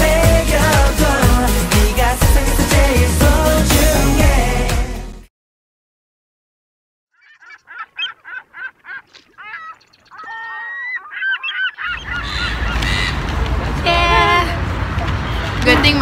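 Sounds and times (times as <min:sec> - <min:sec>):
seagulls calling: 0:07.1 - 0:13.4
outdoor noise rushing: 0:11.8 - 0:16.0.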